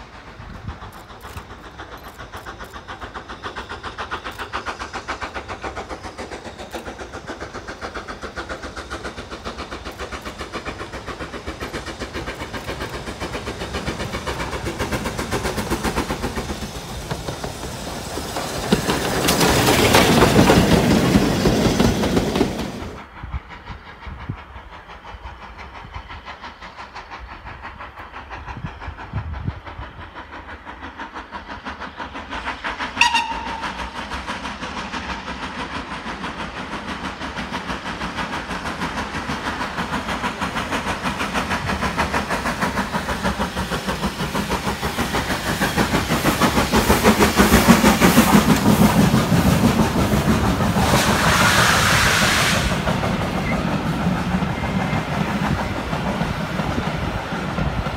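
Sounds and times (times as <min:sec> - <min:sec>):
carriages clickety-clack: 0:00.0 - 0:57.9
steam locomotive exhaust beats: 0:00.0 - 0:57.9
steam locomotive whistle: 0:32.9 - 0:34.3, 0:50.9 - 0:53.8.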